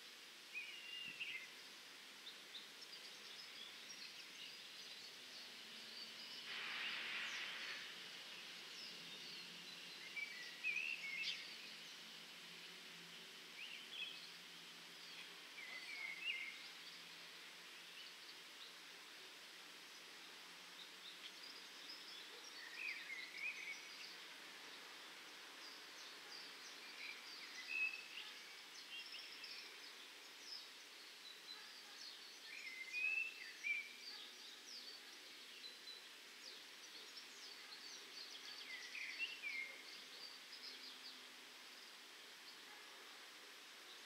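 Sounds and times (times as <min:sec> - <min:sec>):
faint outdoor hiss: 0:00.0 - 0:44.0
small birds chirping: 0:00.0 - 0:44.0.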